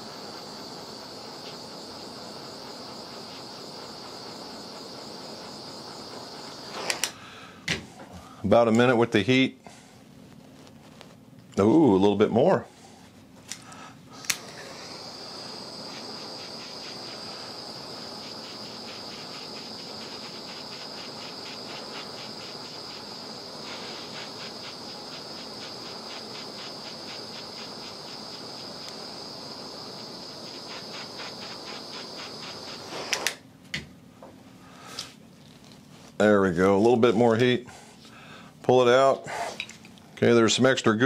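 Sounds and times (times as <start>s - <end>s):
butane torch hissing: 0.0s - 33.6s, 34.2s - 41.0s
torch igniter clicks: 0.1s - 7.9s, 13.4s - 33.9s.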